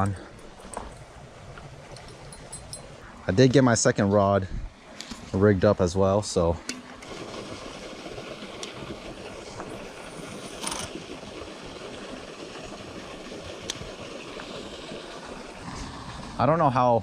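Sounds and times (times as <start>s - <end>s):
fast river current: 0.0s - 17.0s
water spill rushing: 5.2s - 17.0s.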